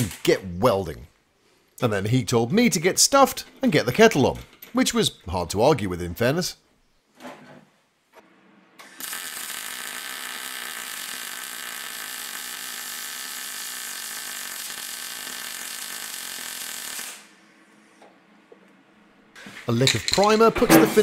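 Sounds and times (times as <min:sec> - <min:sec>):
welder arc noise: 0:08.8 - 0:17.4.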